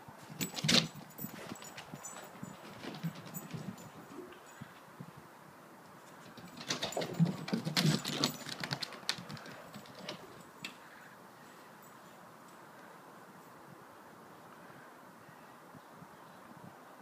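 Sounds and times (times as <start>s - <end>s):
dog claws pattering on wooden decking: 6.2s - 10.4s.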